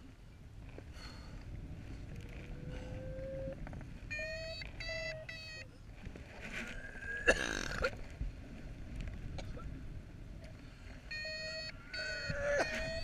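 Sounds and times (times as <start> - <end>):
wind on microphone: 0.0 - 13.0
man retching loudly: 7.0 - 7.9
variometer short pitched beeps: 11.1 - 13.0.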